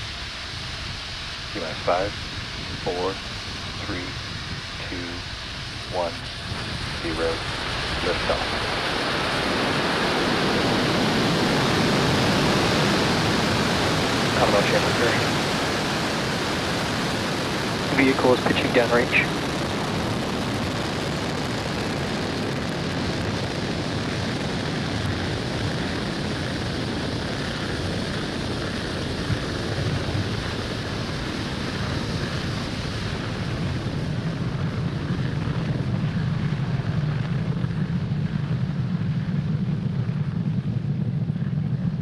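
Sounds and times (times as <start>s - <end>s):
rocket engines rushing rumble: 0.0s - 42.0s.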